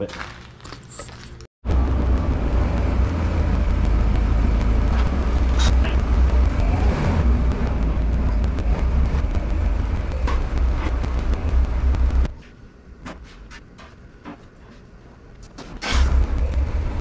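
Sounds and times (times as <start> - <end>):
road and wind noise: 1.3 - 17.0
car engine rumble: 1.6 - 13.1, 15.2 - 17.0.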